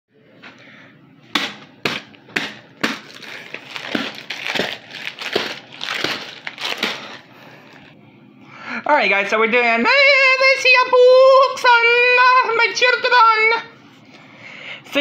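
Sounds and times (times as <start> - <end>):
plastic package smacks: 1.3 - 7.8
plastic crinkling and rustling: 2.7 - 7.9.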